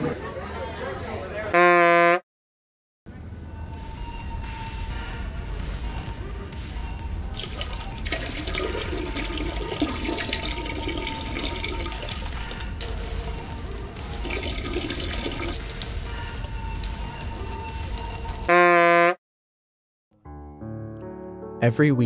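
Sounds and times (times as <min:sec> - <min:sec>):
urine splashing into toilet bowl: 0:07.4 - 0:18.5.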